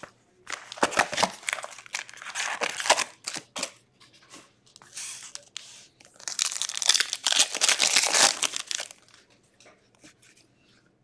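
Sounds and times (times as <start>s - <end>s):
wrapper tearing and crinkling: 0.5s - 3.5s, 6.2s - 9.2s.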